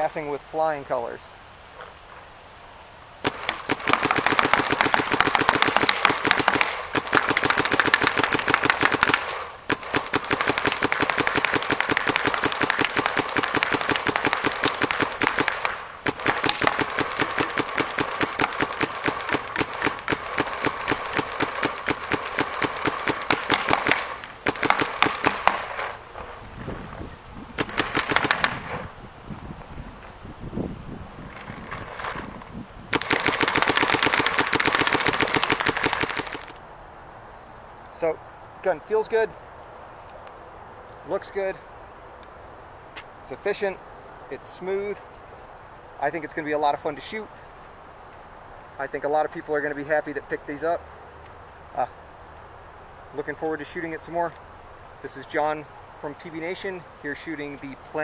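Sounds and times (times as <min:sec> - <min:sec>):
paintball marker firing rapidly: 0:03.2 - 0:26.0, 0:27.6 - 0:28.8, 0:32.9 - 0:36.6.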